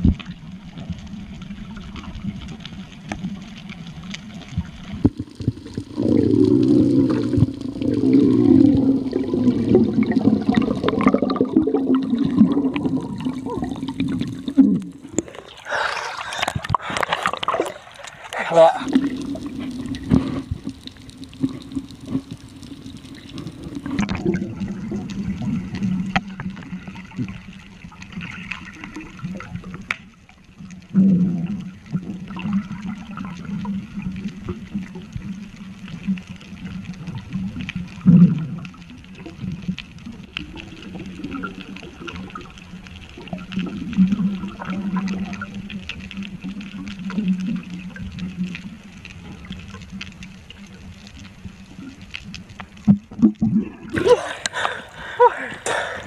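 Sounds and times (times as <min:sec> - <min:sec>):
low underwater hum: 0:00.0 - 0:56.0
water gurgling: 0:00.0 - 0:56.0
faint watery hiss: 0:13.2 - 0:24.1, 0:53.9 - 0:56.0.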